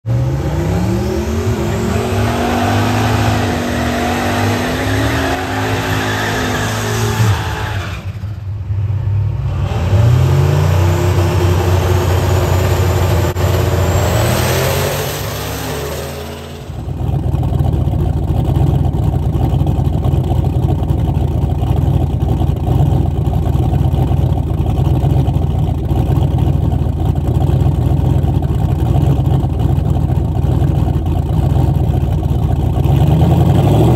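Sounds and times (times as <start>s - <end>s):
drag cars accelerating: 0.0s - 20.0s, 32.8s - 33.9s
car engine idling: 10.8s - 33.9s.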